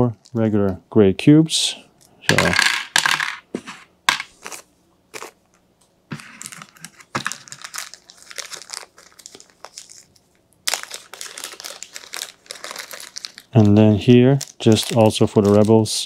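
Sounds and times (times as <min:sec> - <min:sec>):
plastic packaging crinkling: 0:06.2 - 0:16.0.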